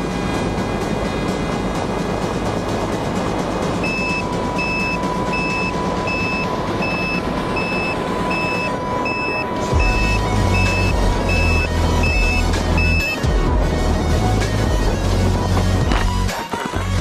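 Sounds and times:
steady high tone: 3.7 - 16.0
electronic beeps: 3.8 - 13.3.

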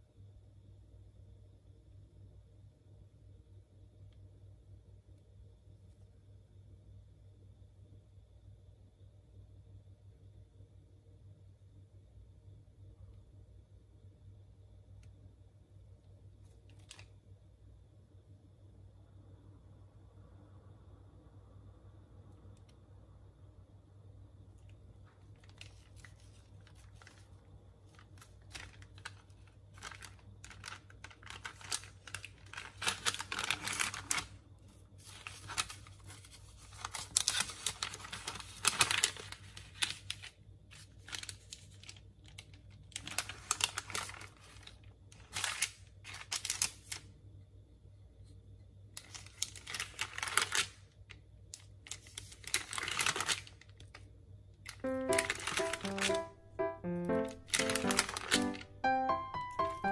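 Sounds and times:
paper rustling and crinkling: 16.6 - 17.1, 25.1 - 47.1, 49.0 - 54.0, 54.7 - 56.3, 57.1 - 59.9.

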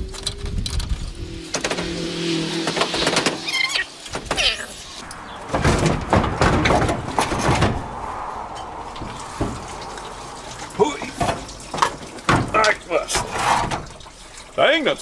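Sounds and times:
metal scraping and knocking: 0.1 - 14.6
short squeaks: 3.2 - 5.0
rattling clanks: 4.0 - 14.6.

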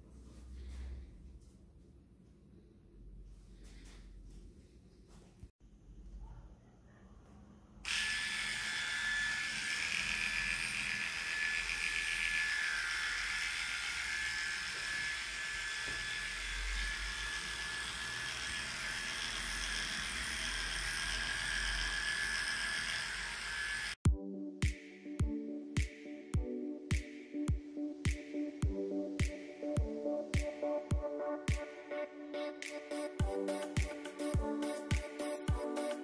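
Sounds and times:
electric clippers humming: 7.9 - 24.0
music with a beat: 24.1 - 31.8, 32.6 - 36.0.

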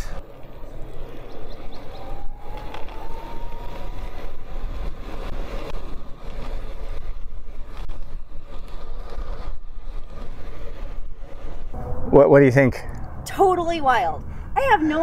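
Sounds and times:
wind buffeting microphone: 0.2 - 15.0
electric motor whine: 1.7 - 5.0.

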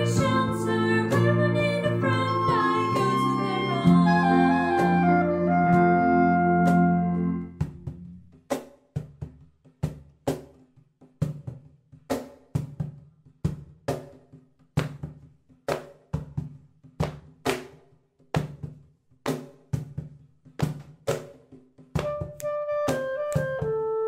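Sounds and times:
drum kit playing steady beat: 0.0 - 10.6.

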